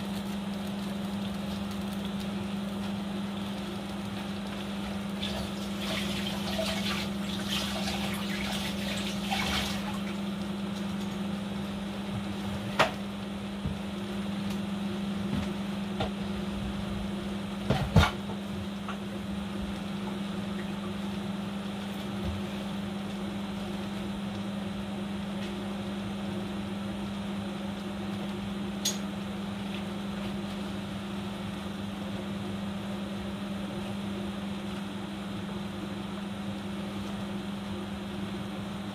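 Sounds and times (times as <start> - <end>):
constant low hum: 0.0 - 38.9
pot of food boiling: 0.0 - 38.9.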